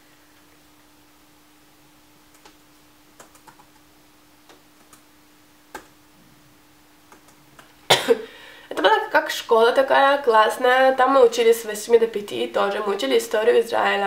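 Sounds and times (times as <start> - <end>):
faint electrical hum: 0.0 - 14.0.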